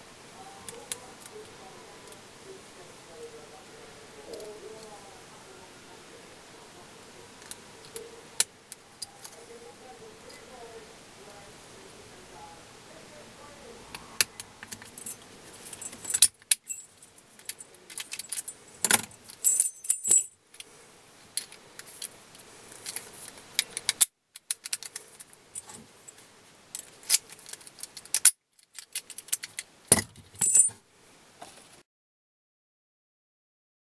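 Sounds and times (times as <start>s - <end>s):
keys jangling against padlock: 14.8s - 20.3s, 27.0s - 30.7s.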